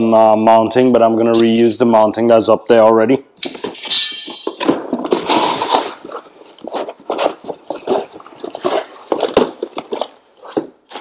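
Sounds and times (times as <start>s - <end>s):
hands rummaging in a box: 4.4s - 11.0s
cardboard scraping rustle: 4.6s - 11.0s.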